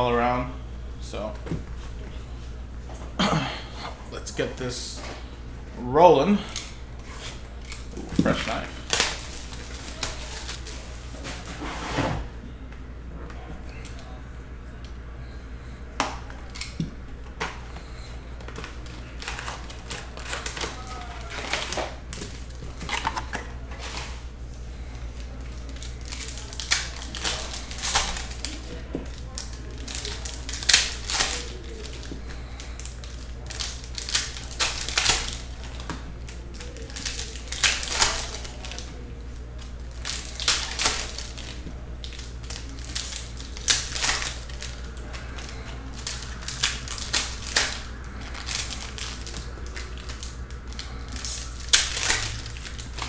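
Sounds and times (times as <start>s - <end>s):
steady low hum: 0.0s - 53.0s
foil packs crinkling: 6.4s - 11.7s, 16.2s - 53.0s.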